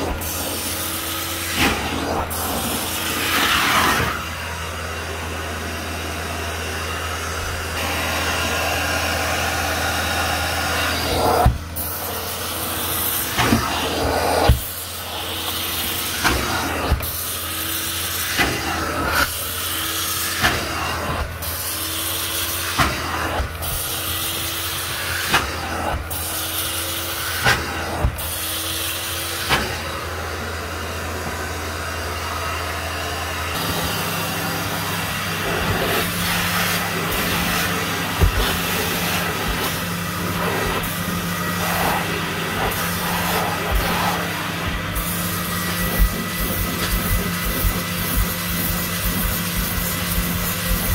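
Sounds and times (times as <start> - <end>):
carpet extraction machine humming: 0.0 - 50.9.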